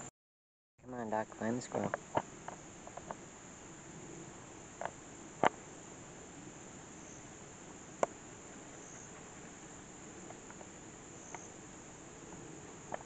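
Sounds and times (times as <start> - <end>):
high-pitched insect chorus: 0.8 - 13.0
faint ticks: 8.0 - 11.6.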